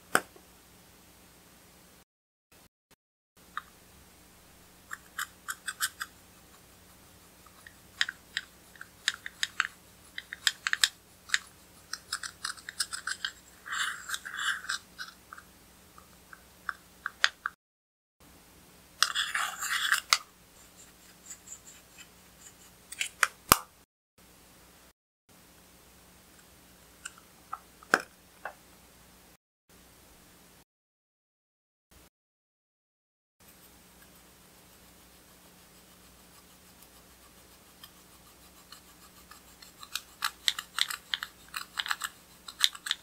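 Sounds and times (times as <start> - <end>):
spatula scraping eyeshadow powder: 4.9 - 15.5, 19.0 - 23.2, 33.5 - 43.0.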